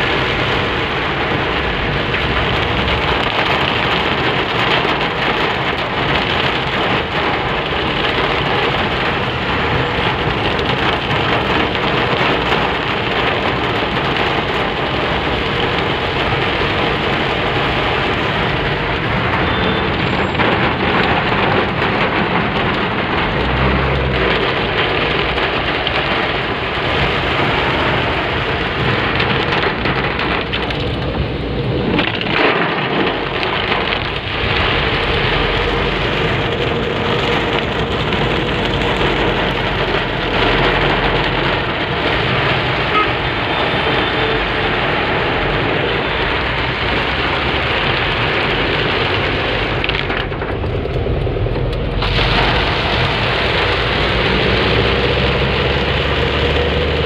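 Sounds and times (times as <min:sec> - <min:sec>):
heavy rain on car roof: 0:00.0 - 0:57.0.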